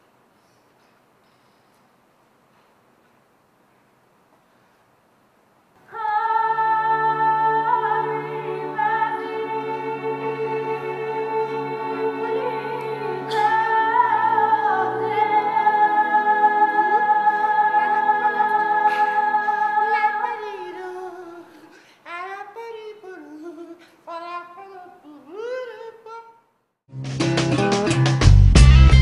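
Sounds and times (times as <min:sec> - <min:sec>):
operatic singing: 0:05.8 - 0:26.4
musical accompaniment: 0:06.2 - 0:20.2, 0:26.9 - 0:29.0.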